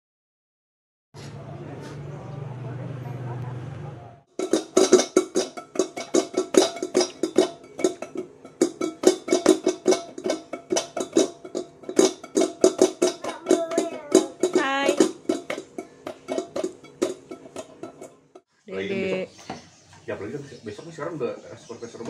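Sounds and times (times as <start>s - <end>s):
hands drumming on metal pot: 4.3s - 18.5s.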